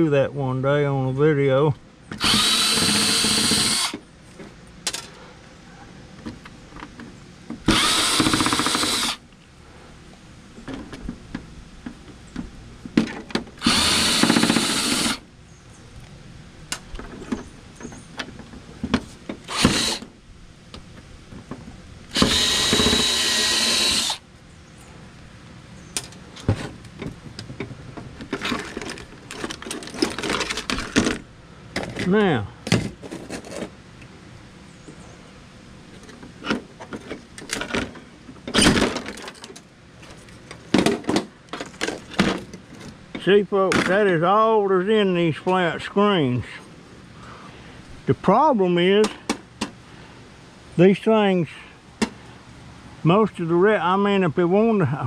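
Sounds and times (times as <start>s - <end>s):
cordless drill whining: 2.2s - 4.0s, 7.7s - 9.2s, 13.6s - 15.2s, 19.5s - 20.0s, 22.1s - 24.2s
screws and parts clattering: 28.2s - 31.2s.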